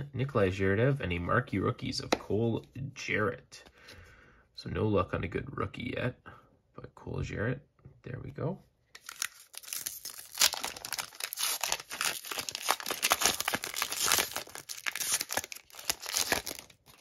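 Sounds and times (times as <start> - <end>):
wrapper tearing and crinkling: 9.0 - 17.0.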